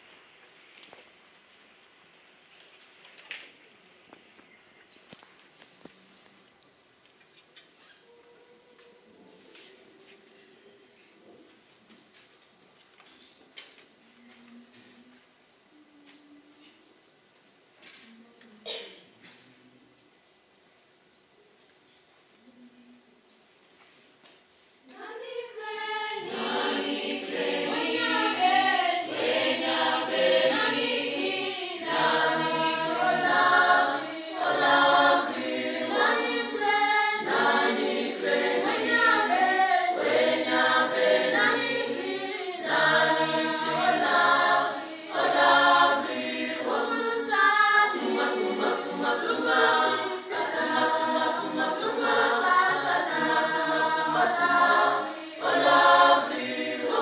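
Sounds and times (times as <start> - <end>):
mixed choir singing: 24.9 - 57.0.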